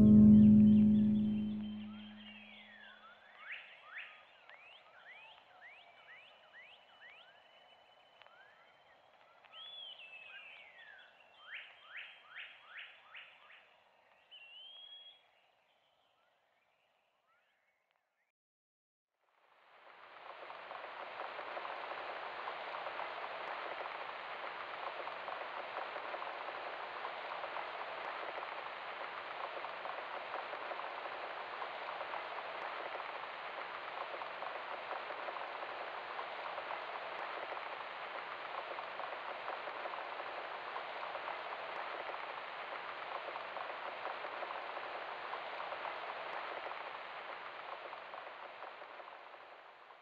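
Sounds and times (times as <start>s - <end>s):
steady rain falling: 19.6s - 50.0s.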